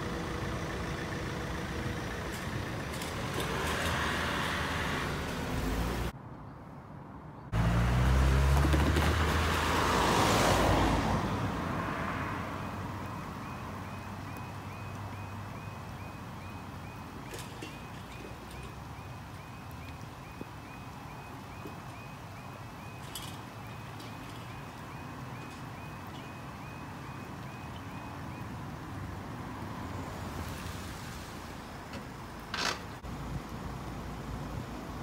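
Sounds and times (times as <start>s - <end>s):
van passing on wet tarmac: 0.0s - 6.1s, 7.5s - 35.0s
vehicles driving over crossing: 0.0s - 6.4s, 7.2s - 35.0s
crossing warning alarm yelp: 12.6s - 28.5s.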